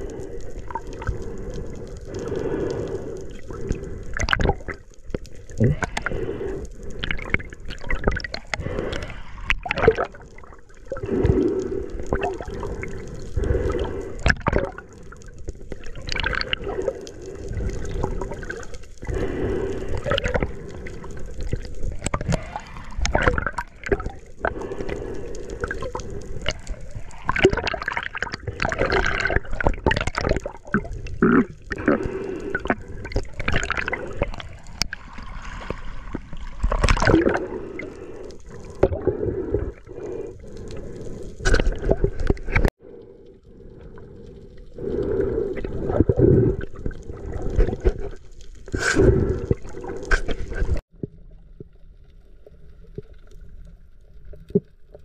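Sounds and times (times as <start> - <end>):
water splashing: 0.0 - 42.7
bubbling: 0.0 - 55.0
water sloshing and gurgling: 0.0 - 55.0.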